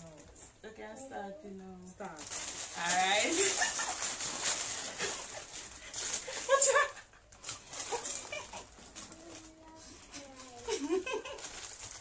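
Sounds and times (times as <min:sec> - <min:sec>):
plastic packets rustling: 0:02.0 - 0:12.0
crackers crunching: 0:02.1 - 0:12.0.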